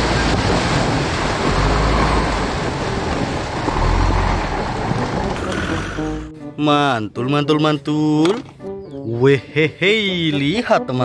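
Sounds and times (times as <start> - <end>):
water splashing from wheels: 0.0 - 6.1.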